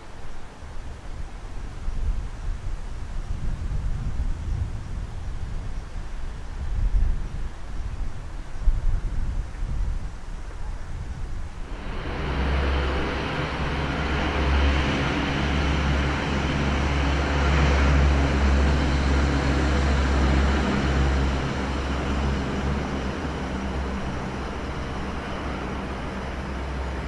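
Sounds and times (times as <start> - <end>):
train rumbling into station: 11.3 - 27.0.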